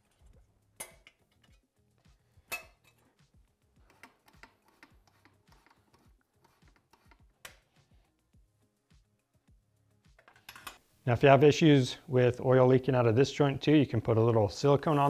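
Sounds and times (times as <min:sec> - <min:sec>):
metal tools clicking and clinking: 0:10.2 - 0:10.8.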